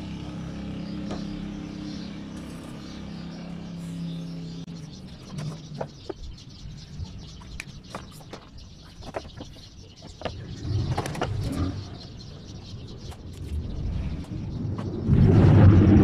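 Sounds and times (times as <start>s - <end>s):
low rumble: 13.4s - 16.0s.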